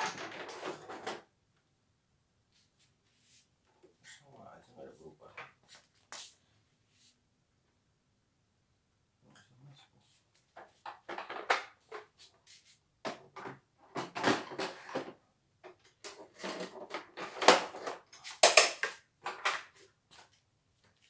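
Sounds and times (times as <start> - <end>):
clatter and rustling of handled things: 0.0 - 1.3, 9.3 - 21.0.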